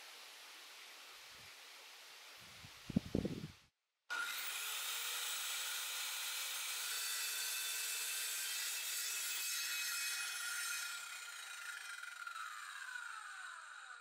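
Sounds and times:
circular saw cutting wood: 4.1 - 14.0.

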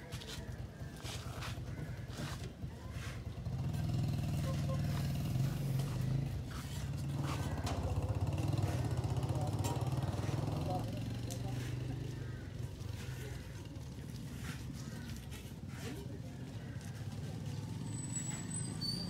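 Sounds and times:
engine running: 1.8 - 14.3.

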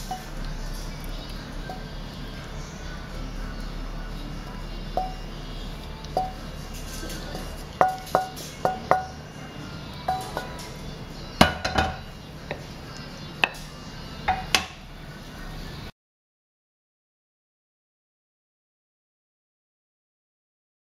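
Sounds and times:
pan and spatula clinking: 0.0 - 2.0, 5.0 - 5.3, 6.1 - 9.2, 10.0 - 12.7.

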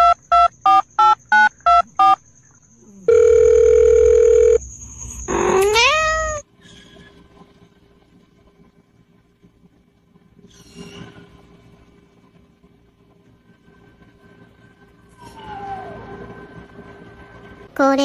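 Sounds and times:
phone keypad dialing tones: 0.0 - 2.2, 3.1 - 4.6
cat meowing: 5.4 - 6.4.

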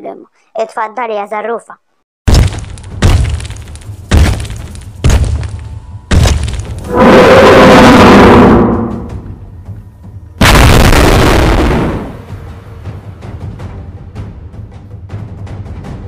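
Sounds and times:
dinosaur roars: 6.8 - 9.2.

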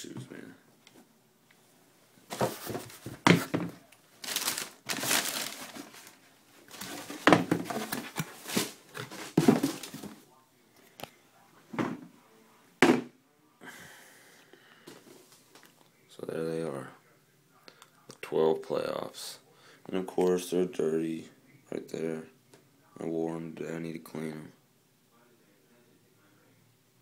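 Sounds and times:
tissue paper rustling: 4.1 - 10.1.

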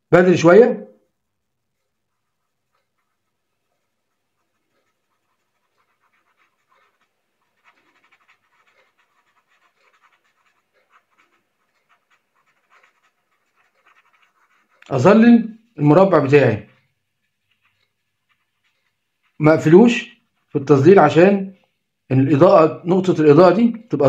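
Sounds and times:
pencil shading on paper: 1.5 - 20.9.

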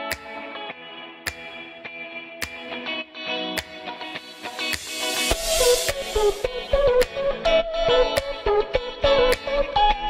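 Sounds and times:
sharp percussive hit: 3.6 - 7.1.

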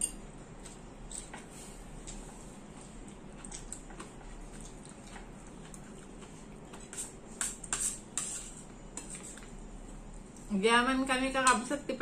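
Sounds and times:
cutlery clinking on metal bowl: 0.0 - 0.2
quiet eating: 0.1 - 10.5.

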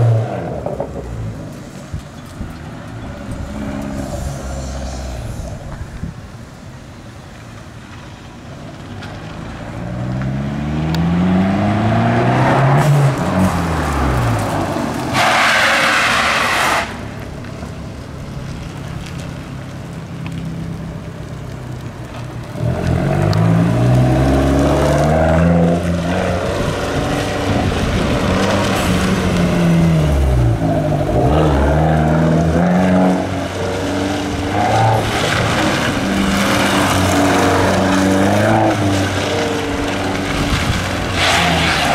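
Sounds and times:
car engine accelerating: 8.8 - 21.1, 22.0 - 41.9.

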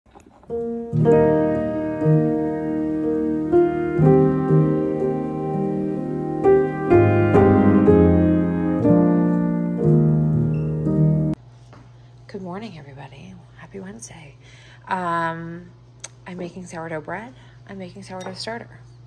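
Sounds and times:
piano playing chords: 0.4 - 11.4.

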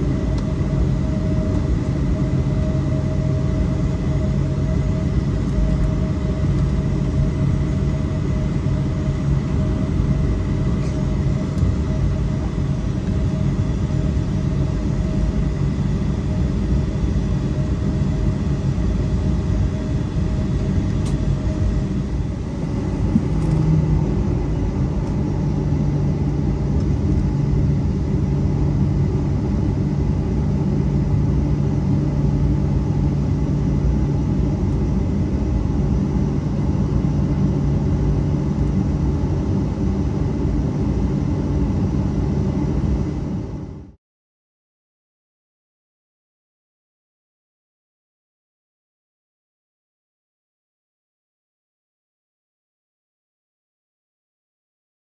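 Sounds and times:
airliner cabin rumble: 0.0 - 43.9
low steady hum: 0.0 - 44.0.

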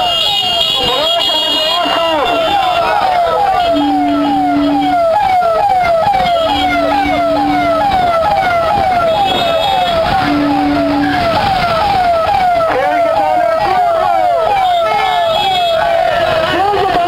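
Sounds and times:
car horn held: 0.2 - 5.2, 6.2 - 11.4
electronic siren falling wail: 1.8 - 16.2.

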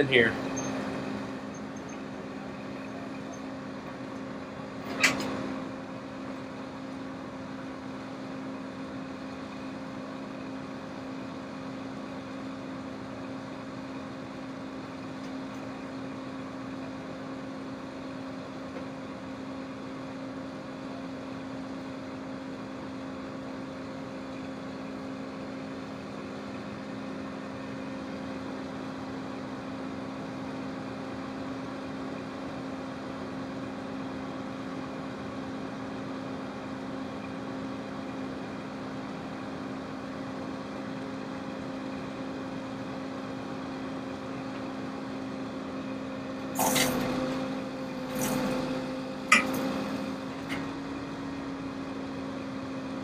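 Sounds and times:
truck engine humming: 0.0 - 10.8, 46.5 - 52.0.

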